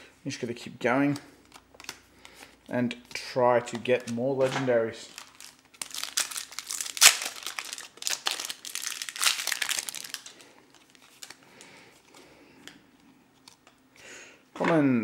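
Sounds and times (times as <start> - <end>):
cards rustling: 1.1 - 12.2
foil pack tearing and crinkling: 5.1 - 11.4.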